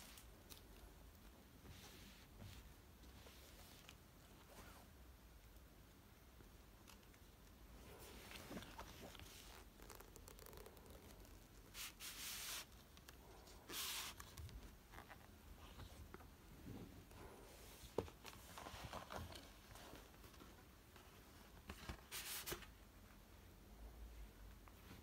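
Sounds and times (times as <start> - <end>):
faint handling noise: 0.0 - 23.3.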